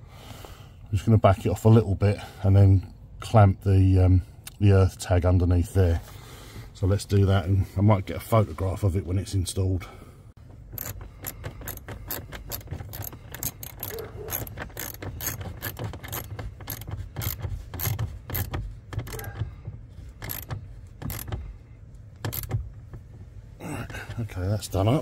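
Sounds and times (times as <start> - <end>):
hand ratchet clicking: 10.5 - 23.3.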